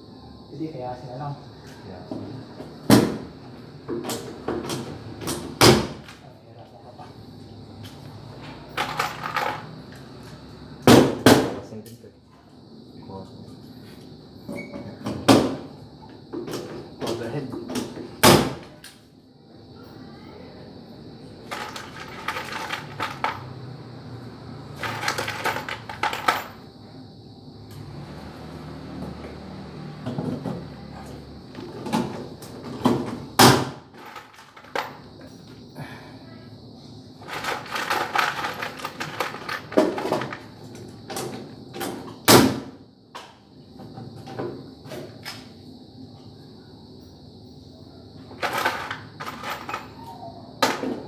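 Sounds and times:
knocks and clatter of ceiling boards: 2.9s - 3.3s, 14.9s - 15.7s.

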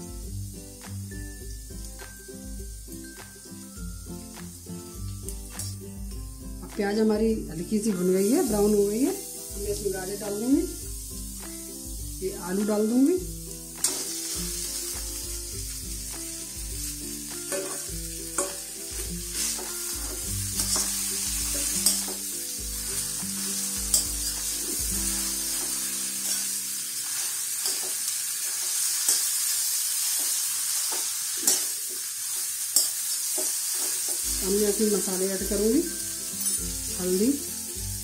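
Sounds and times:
background music low notes: 0.0s - 29.1s, 33.0s - 38.0s
vegetables sizzling in oil: 0.0s - 38.0s
steel ladle scraping a pan: 13.8s - 14.6s, 17.5s - 34.2s.

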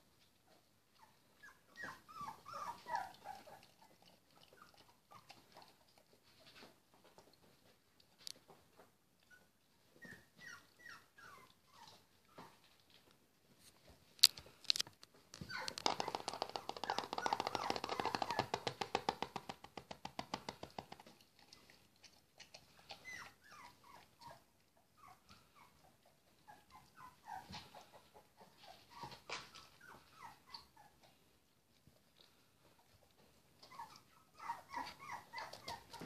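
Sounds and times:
puppies whimpering and squeaking: 1.0s - 5.8s, 9.2s - 12.8s, 15.4s - 18.7s, 22.7s - 31.2s, 33.5s - 36.0s.

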